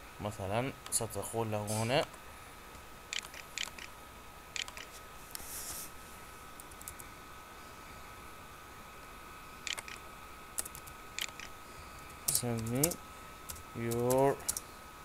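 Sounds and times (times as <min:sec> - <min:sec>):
faint steady whine: 0:00.0 - 0:15.0
keyboard typing clicks: 0:03.1 - 0:03.9, 0:04.6 - 0:04.9, 0:09.7 - 0:10.0, 0:10.6 - 0:14.6.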